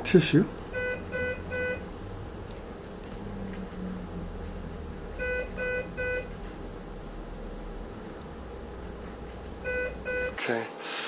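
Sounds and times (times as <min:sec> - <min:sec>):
low steady hum: 0:00.0 - 0:10.8
electronic alarm beeping: 0:00.7 - 0:01.8, 0:05.2 - 0:06.4, 0:09.6 - 0:10.4.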